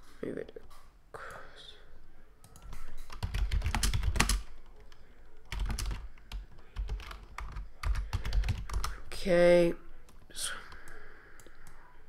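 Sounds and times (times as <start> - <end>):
keyboard typing: 2.4 - 4.9, 5.5 - 9.0.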